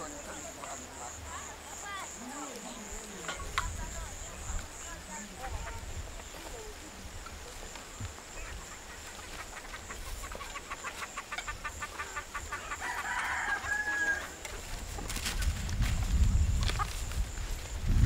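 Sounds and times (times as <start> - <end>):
chickens clucking: 0.0 - 17.8
rooster crowing: 12.5 - 14.4.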